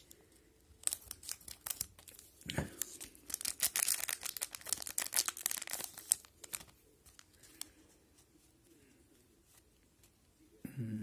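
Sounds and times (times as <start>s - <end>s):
plastic wrapper crinkling and tearing: 0.0s - 7.8s
cards rustling and clicking: 0.0s - 8.7s.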